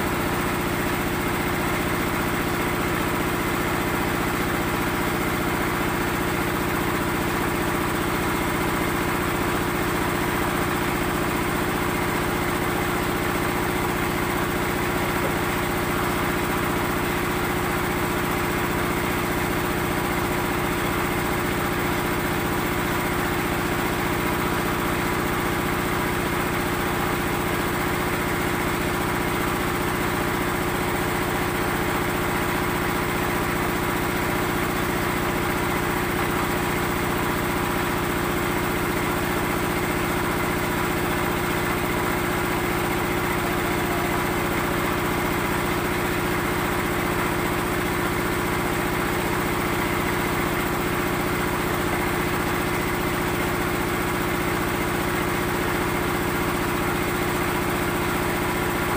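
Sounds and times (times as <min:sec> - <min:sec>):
small engine humming steadily: 0:00.0 - 0:58.9.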